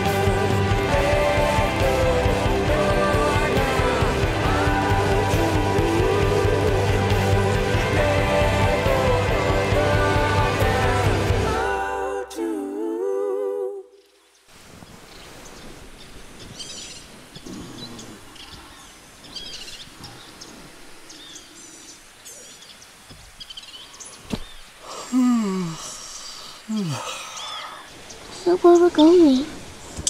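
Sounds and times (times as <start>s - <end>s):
background music: 0.0s - 13.8s
faint bird chirps: 14.0s - 24.7s, 26.7s - 29.4s.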